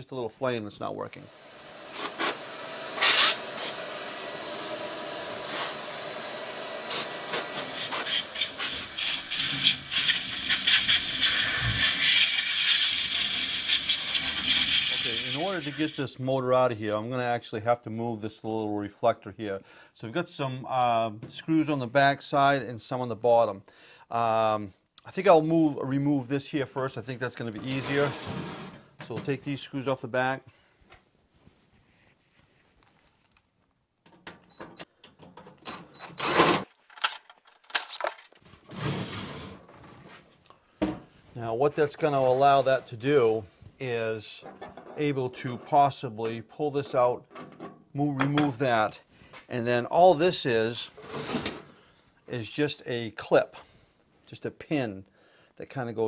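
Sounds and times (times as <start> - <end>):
rasping burst: 1.3 - 15.6
compressed air hissing from blow gun: 1.3 - 15.9.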